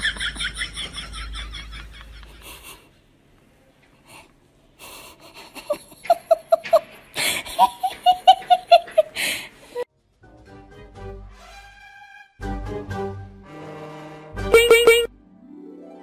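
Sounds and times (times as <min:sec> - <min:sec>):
person giggling: 0:04.8 - 0:09.8
sharp gasping breaths: 0:07.1 - 0:07.6, 0:09.1 - 0:09.8.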